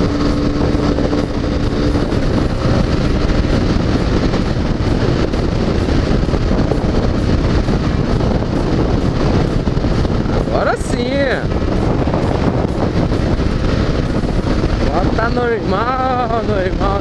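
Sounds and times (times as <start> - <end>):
motorcycle engine running: 0.0 - 17.0
wind rushing on microphone: 0.0 - 17.0.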